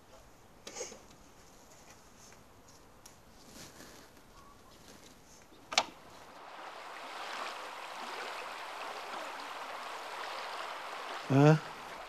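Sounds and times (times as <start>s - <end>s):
river water rushing: 6.2s - 12.0s.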